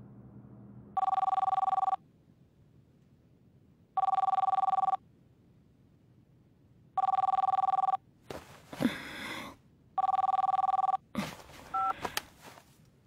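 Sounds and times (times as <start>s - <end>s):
telephone ringing with warbling trill: 1.0s - 2.0s, 4.0s - 5.0s, 7.0s - 8.0s, 10.0s - 11.0s.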